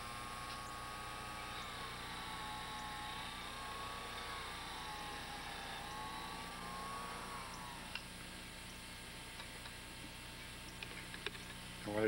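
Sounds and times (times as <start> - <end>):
lathe whine: 0.0 - 8.8
low hum: 0.0 - 12.0.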